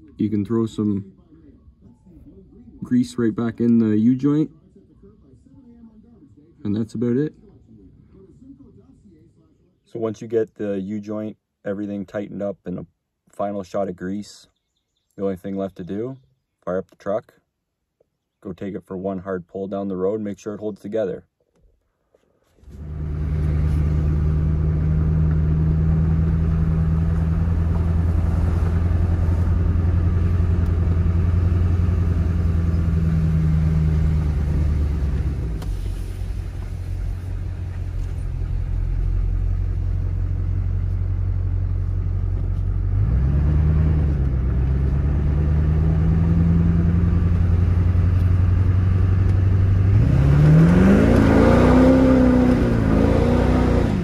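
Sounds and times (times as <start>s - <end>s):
truck engine revving: 22.7s - 54.0s.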